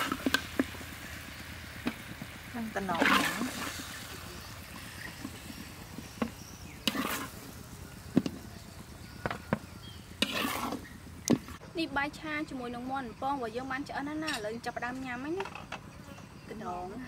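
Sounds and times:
tongs scraping: 4.4 - 7.4, 10.2 - 10.9.

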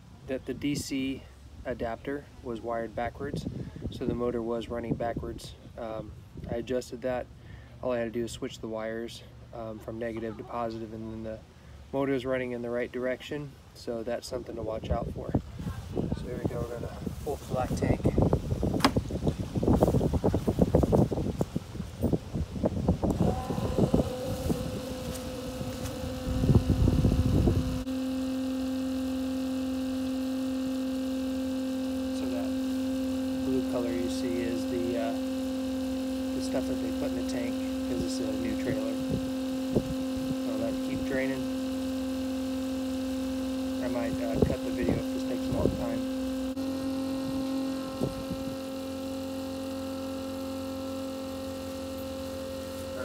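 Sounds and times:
pump motor humming: 0.0 - 53.0
short bump: 18.7 - 19.0.

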